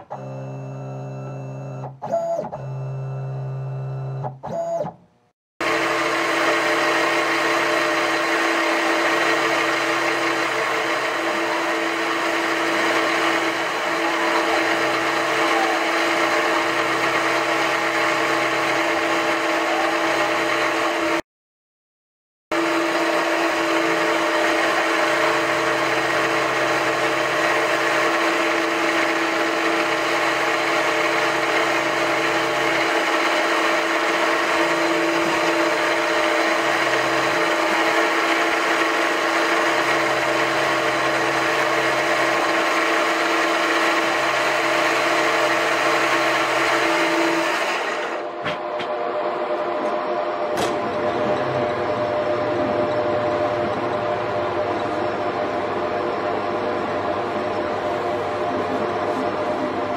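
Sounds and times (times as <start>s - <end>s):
laser cutter hum: 0.0s - 4.9s, 5.6s - 21.2s, 22.5s - 59.9s
milling machine cutting: 5.6s - 21.2s, 22.5s - 49.0s.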